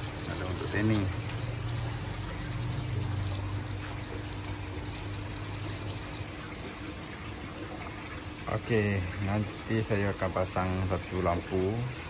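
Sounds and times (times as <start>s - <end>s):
water trickling into aquarium: 0.0s - 12.0s.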